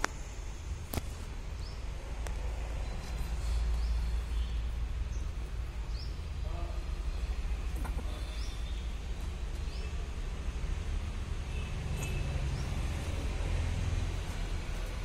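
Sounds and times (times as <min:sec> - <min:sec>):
small birds chirping: 0:02.7 - 0:10.2.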